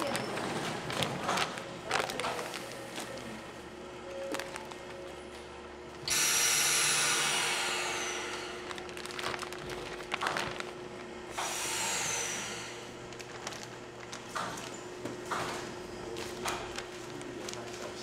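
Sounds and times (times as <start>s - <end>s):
plastic bags crinkling: 0.0s - 3.6s, 4.2s - 5.2s, 8.3s - 11.3s, 12.2s - 14.8s, 15.5s - 18.0s
machine hum: 0.0s - 18.0s.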